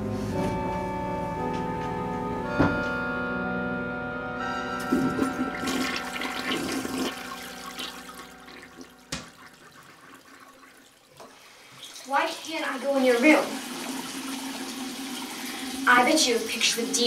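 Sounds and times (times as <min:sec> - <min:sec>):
background music with long notes: 0:00.0 - 0:09.2
toilet flushing: 0:04.8 - 0:17.0.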